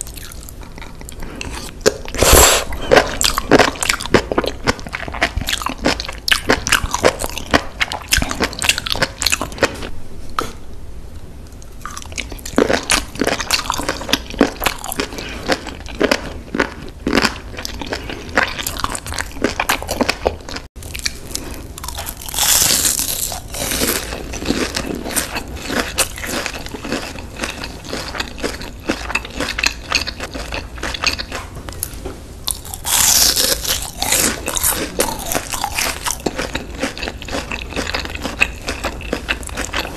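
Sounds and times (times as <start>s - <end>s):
crunchy bites of fried food: 11.8s - 31.4s, 32.5s - 39.9s.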